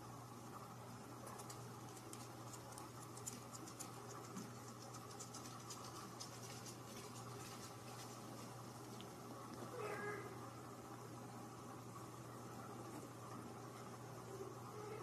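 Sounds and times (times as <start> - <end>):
low steady hum: 0.0 - 15.0
kitten scratching toy on fabric: 1.3 - 8.5.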